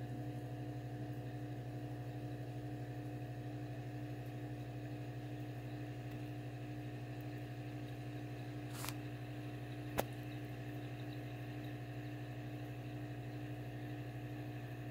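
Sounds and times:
aquarium equipment humming: 0:00.0 - 0:14.9.

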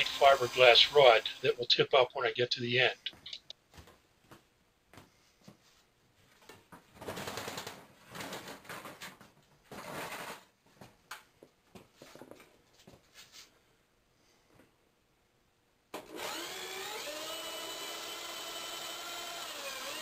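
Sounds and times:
electric drill winding wire: 0:00.0 - 0:01.5, 0:16.0 - 0:20.0.

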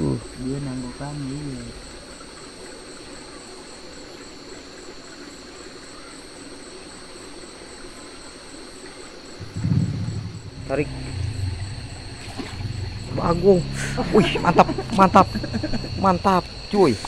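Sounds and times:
crickets chirring: 0:00.0 - 0:17.0
flowing water hiss: 0:00.0 - 0:17.0
loud low sound: 0:09.4 - 0:17.0.

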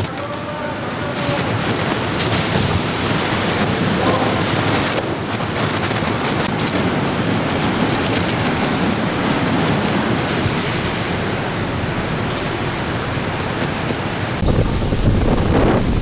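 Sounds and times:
hurricane wind and rain: 0:00.0 - 0:16.0
wind buffeting microphone: 0:00.0 - 0:16.0.

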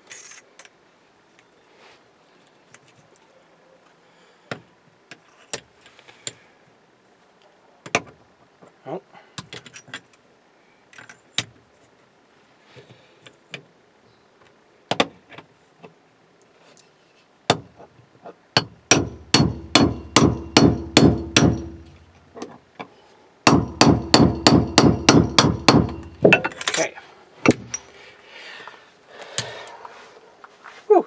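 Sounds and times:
tools clicking and knocking: 0:18.6 - 0:22.6, 0:23.5 - 0:26.8
hammer striking metal socket: 0:18.9 - 0:21.9.

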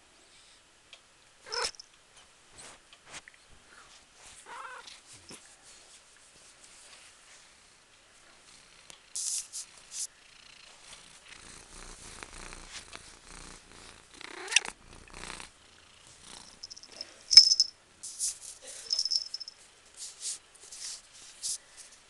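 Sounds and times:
cat meowing softly: 0:01.5 - 0:01.8, 0:04.4 - 0:04.9
cat purring: 0:10.2 - 0:17.1
rustling of fur and blanket: 0:12.6 - 0:13.2
collar bell jingling: 0:16.6 - 0:17.7, 0:18.9 - 0:19.6.

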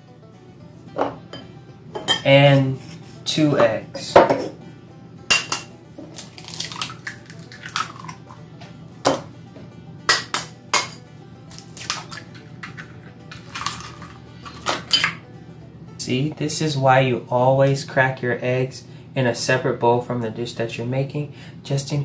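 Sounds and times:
soft background music: 0:00.0 - 0:22.0
eggs cracking on ceramic bowl: 0:05.3 - 0:08.4, 0:10.1 - 0:15.2.

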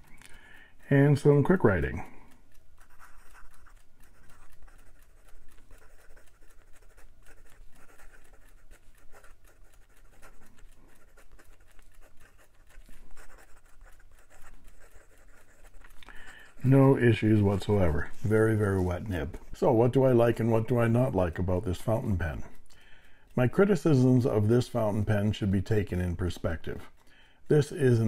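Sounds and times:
fountain pen scratching on paper: 0:02.7 - 0:19.4.

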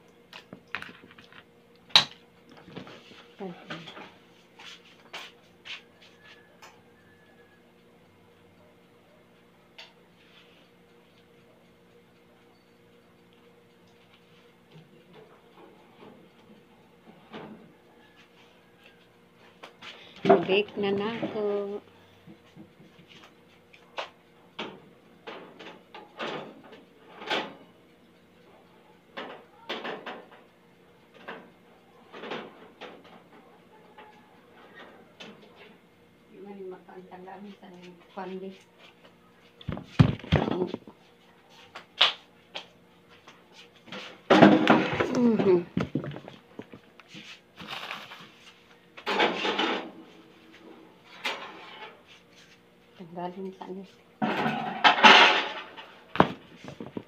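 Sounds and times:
faint steady hum: 0:00.0 - 0:57.0
household knocks and clunks: 0:39.7 - 0:40.8, 0:44.3 - 0:46.8.

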